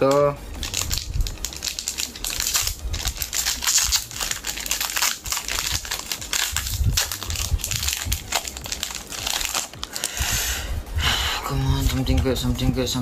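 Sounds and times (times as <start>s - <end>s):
foil wrapper crinkling: 0.0s - 10.4s.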